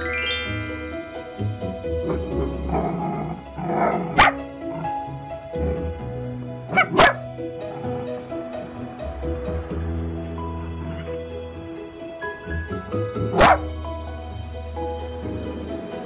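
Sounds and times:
background music: 0.0 - 16.0
dogs barking: 2.0 - 5.0, 6.7 - 8.2, 13.2 - 13.7.

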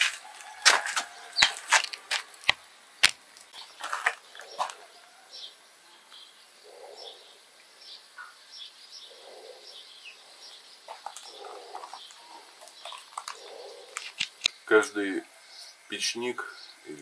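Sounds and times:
small birds chirping: 0.0 - 17.0
soft low cooing: 6.0 - 7.5, 9.1 - 10.4, 11.0 - 14.0.

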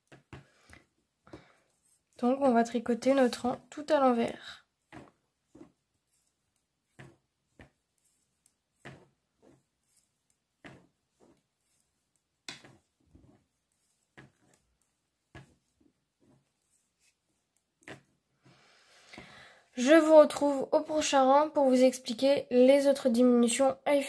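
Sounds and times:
knitting needles clicking: 9.8 - 12.8.

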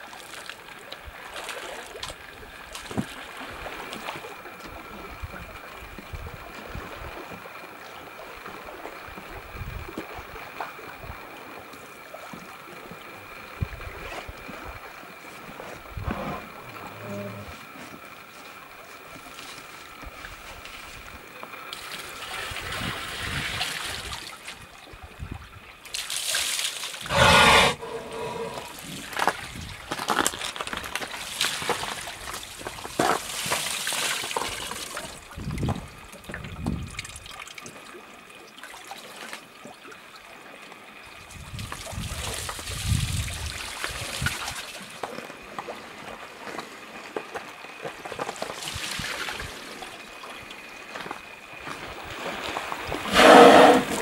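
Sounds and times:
water trickling and splashing: 0.0 - 16.5, 17.6 - 27.1, 28.6 - 54.0
short rush of noise: 27.0 - 28.7.

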